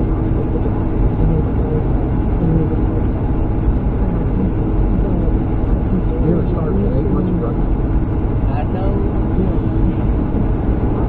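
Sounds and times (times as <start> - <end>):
truck engine and tyre rumble: 0.0 - 11.0.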